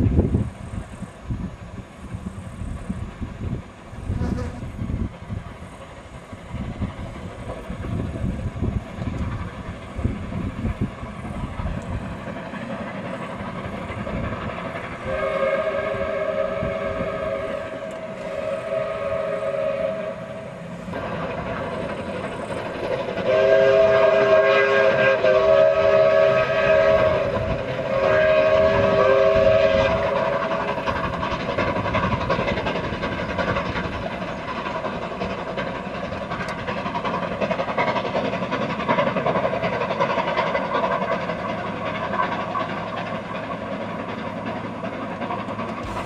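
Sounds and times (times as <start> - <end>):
steam train running: 0.0 - 46.0
steam locomotive whistle: 15.0 - 20.7, 23.2 - 31.0, 45.8 - 46.0.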